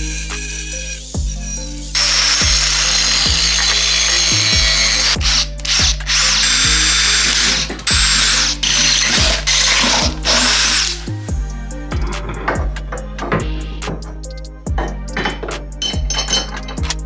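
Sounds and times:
cordless drill boring through steel: 0:00.0 - 0:11.3
background music with bass beat: 0:00.0 - 0:17.0.

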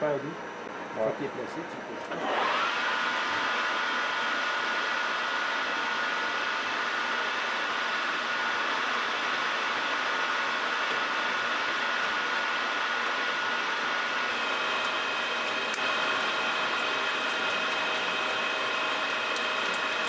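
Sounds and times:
lathe running with high whine: 0:01.7 - 0:20.0.

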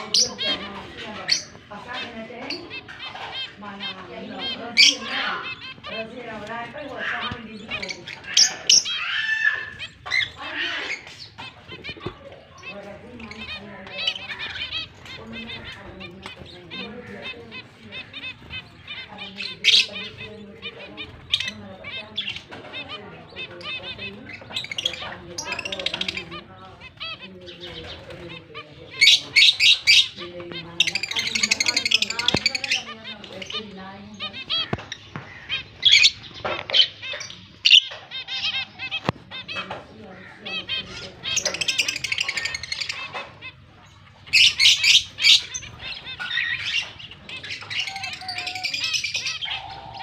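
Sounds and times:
birds chattering: 0:00.0 - 0:50.0
harsh bird squawk: 0:00.0 - 0:50.0
lovebirds chirping: 0:00.0 - 0:50.0
shrill bird calls: 0:07.0 - 0:11.4.

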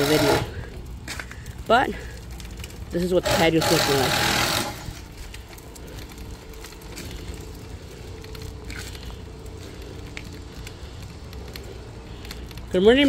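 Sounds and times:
light clicks and ticks: 0:04.9 - 0:13.0.

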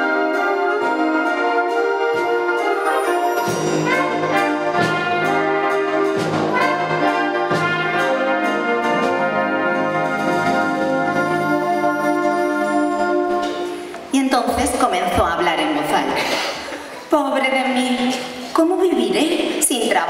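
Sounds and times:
wind band playing: 0:00.0 - 0:14.1.

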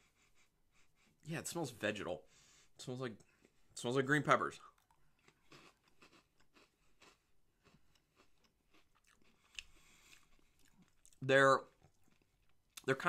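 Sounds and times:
person chewing rice crackers: 0:04.6 - 0:12.9.

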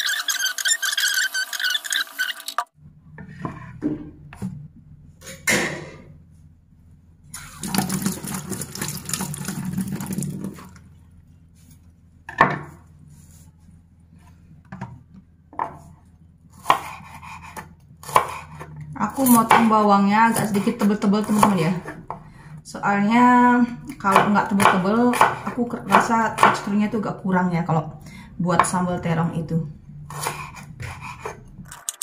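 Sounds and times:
running tap: 0:07.4 - 0:10.8
kitchen knocks and clatter: 0:12.3 - 0:12.8.

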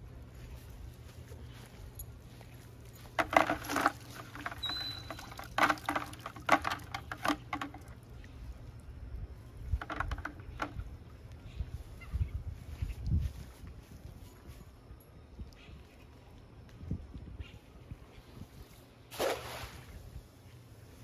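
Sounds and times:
water pattering: 0:03.1 - 0:08.3
net weights clicking and rattling: 0:03.2 - 0:08.0.

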